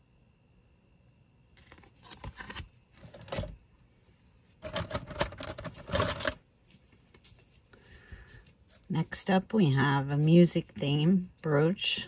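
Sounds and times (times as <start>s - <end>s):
metal jewelry clinking: 4.6s - 6.4s.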